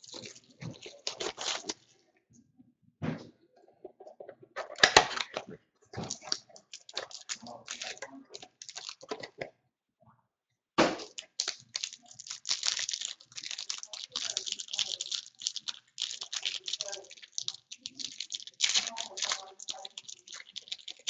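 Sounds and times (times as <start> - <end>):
cardboard and cards rustling: 0.0 - 1.9, 4.6 - 9.4.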